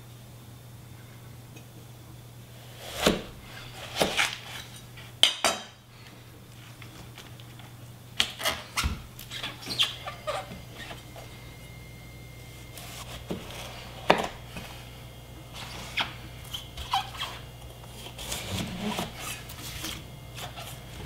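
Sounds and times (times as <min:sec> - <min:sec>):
knife cutting cauliflower: 0:02.7 - 0:04.8.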